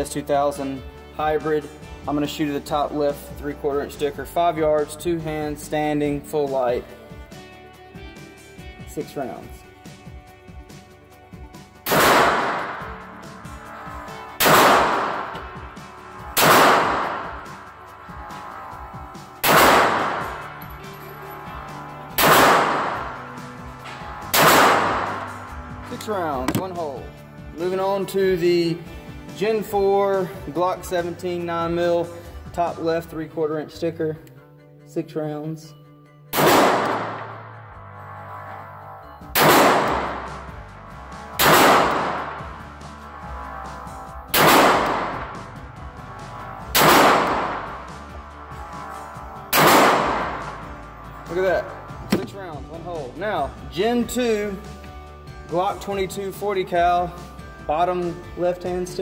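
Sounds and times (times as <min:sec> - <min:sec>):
pistol shots echoing indoors: 0:11.9 - 0:13.0, 0:14.4 - 0:15.4, 0:16.4 - 0:17.4, 0:19.4 - 0:20.4, 0:22.2 - 0:23.1, 0:24.3 - 0:25.2, 0:36.3 - 0:37.3, 0:39.4 - 0:40.2, 0:41.4 - 0:42.3, 0:44.3 - 0:45.3, 0:46.8 - 0:47.6, 0:49.5 - 0:50.5.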